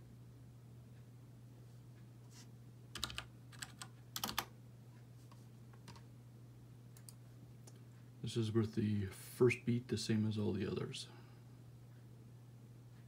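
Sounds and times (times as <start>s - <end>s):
faint steady hum: 0.0s - 13.0s
computer keyboard typing: 2.9s - 4.5s, 5.8s - 6.1s, 7.0s - 7.2s.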